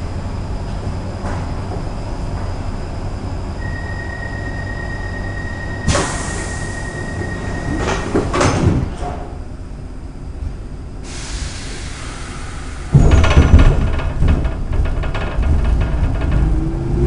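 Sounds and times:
subway car rumble: 0.0s - 17.0s
clatter of sliding doors: 5.8s - 9.4s, 11.8s - 17.0s
air hiss: 5.9s - 7.1s, 11.0s - 13.0s.

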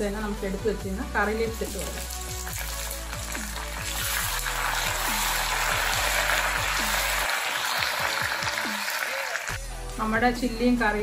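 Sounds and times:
background music: 0.0s - 11.0s
leaves sizzling in hot oil: 1.1s - 9.5s.

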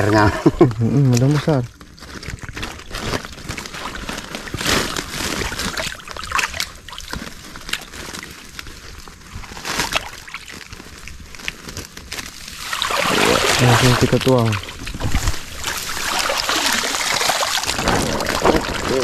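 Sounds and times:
water sloshing and trickling: 0.6s - 19.0s
water splashes: 3.1s - 7.8s, 12.4s - 19.0s.

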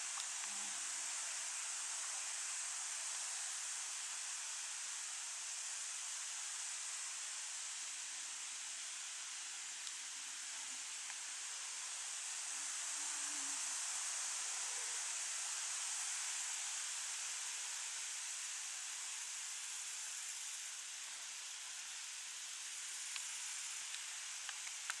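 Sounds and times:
faint ticks: 0.1s - 0.7s, 9.8s - 10.0s, 11.0s - 11.2s, 22.8s - 25.0s
insects stridulating: 10.2s - 25.0s.

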